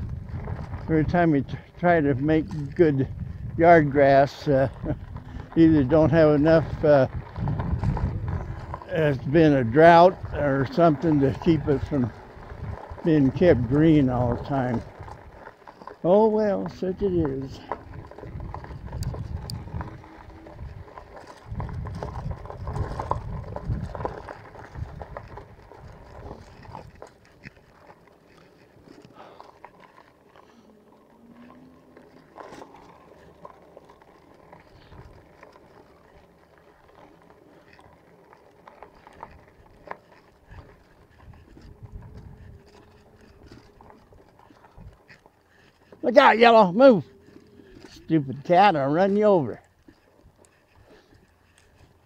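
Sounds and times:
wind rumbling on microphone: 0:00.0 - 0:15.5, 0:17.0 - 0:27.8, 0:34.6 - 0:36.2, 0:39.0 - 0:45.9
bike tyres rolling over gravel: 0:00.0 - 0:52.0
light crunches and clicks: 0:00.0 - 0:52.0.

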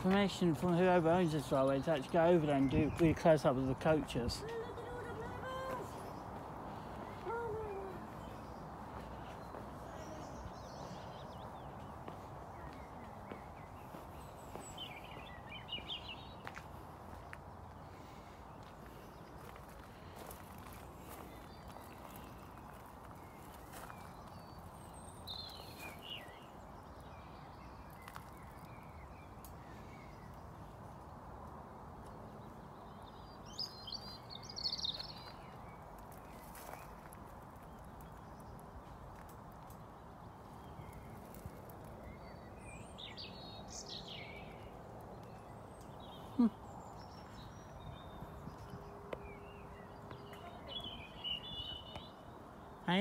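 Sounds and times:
background noise: 0:00.0 - 0:53.0
faint background noise: 0:00.0 - 0:53.0
small birds chirping: 0:00.0 - 0:53.0
bird chirping: 0:39.8 - 0:53.0.

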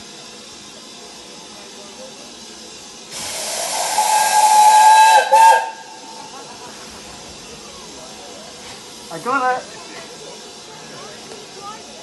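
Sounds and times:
hissing steam: 0:00.0 - 0:12.0
steam locomotive whistle: 0:03.2 - 0:06.2.

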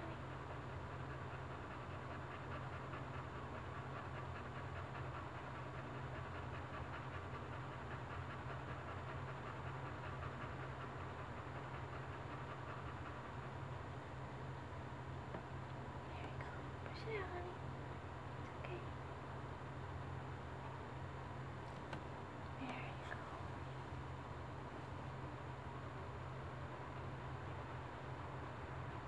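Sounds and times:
dog panting rapidly: 0:00.0 - 0:18.6
steady low hum: 0:00.0 - 0:29.0.

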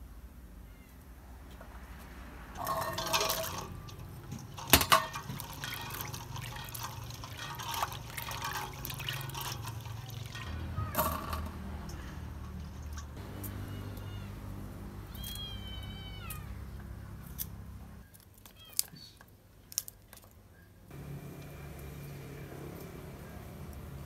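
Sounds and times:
water sloshing in steel bowl: 0:02.5 - 0:13.2.

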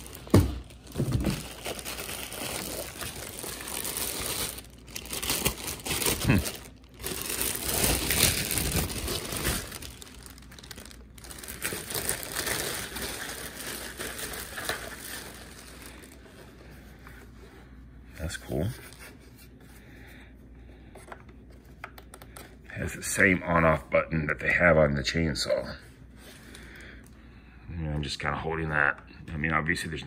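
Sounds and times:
plastic bag crinkling: 0:00.0 - 0:16.5.

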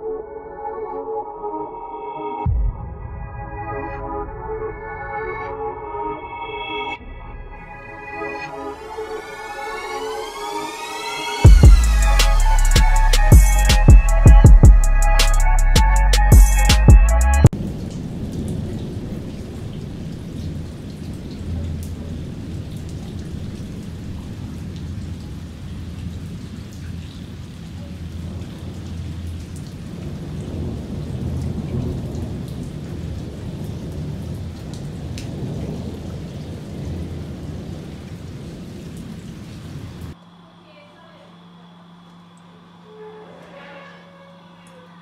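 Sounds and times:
rolling thunder: 0:02.5 - 0:05.6, 0:17.5 - 0:26.6, 0:28.2 - 0:40.2
steady rain: 0:08.4 - 0:13.6, 0:17.5 - 0:42.9.

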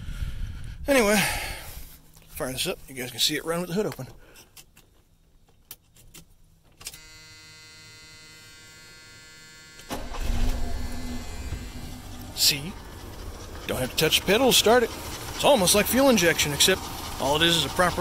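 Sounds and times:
dashboard warning buzzer: 0:07.0 - 0:12.4
car engine starting and running: 0:09.8 - 0:18.0.

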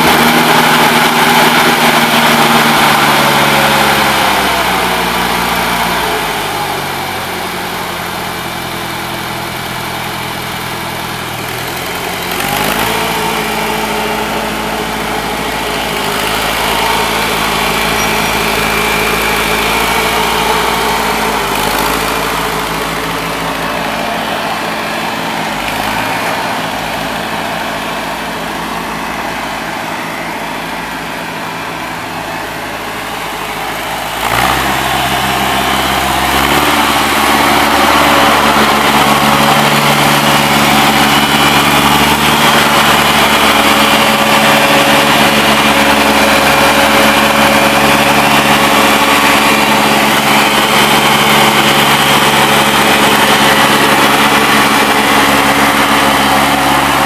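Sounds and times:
tractor engine running: 0:00.0 - 0:57.0.

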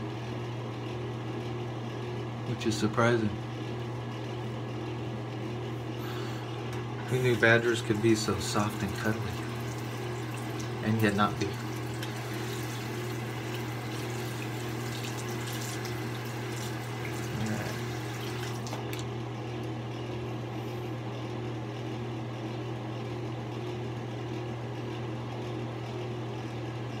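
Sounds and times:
steady low hum: 0:00.0 - 0:21.5.

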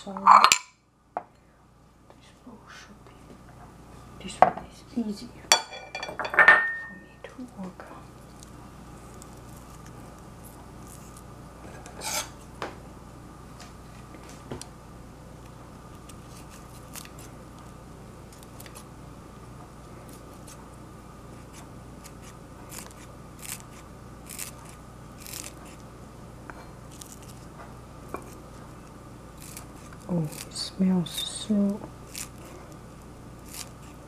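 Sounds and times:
steady low hum: 0:00.0 - 0:34.0
scissors snipping: 0:16.0 - 0:17.7, 0:33.4 - 0:33.9.

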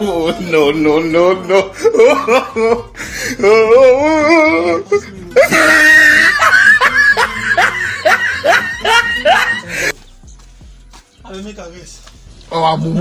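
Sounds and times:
person laughing: 0:00.0 - 0:09.9
person wailing: 0:03.4 - 0:06.8.

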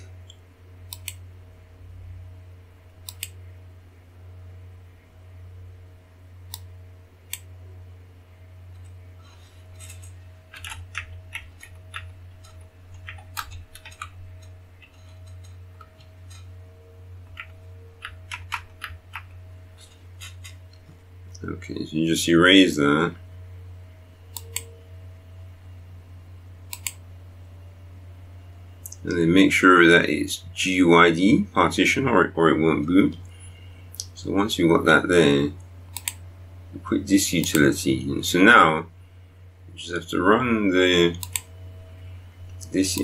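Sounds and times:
steady low hum: 0:00.0 - 0:43.0
mouse clicks: 0:00.2 - 0:01.2, 0:03.0 - 0:03.4, 0:26.7 - 0:27.0, 0:35.9 - 0:36.2
keyboard typing: 0:09.8 - 0:16.6, 0:17.2 - 0:20.8.

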